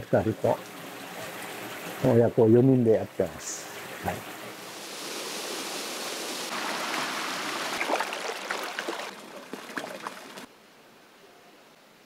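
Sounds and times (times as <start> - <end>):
stream rushing over rocks: 4.7 - 10.5.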